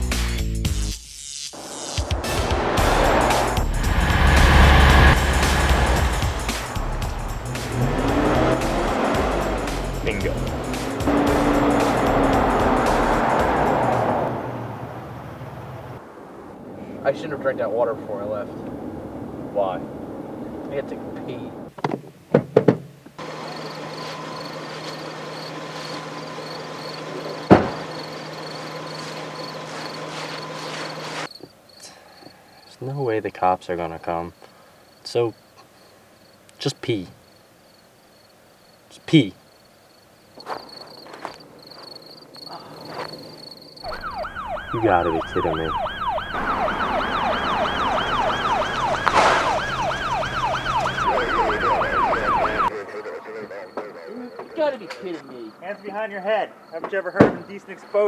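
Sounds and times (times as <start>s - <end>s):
crickets chirping: 1.5s - 20.6s, 23.1s - 58.0s
car engine idling: 2.2s - 16.9s, 23.2s - 31.3s
car door shutting: 27.0s - 28.3s
siren yelping: 42.6s - 55.0s.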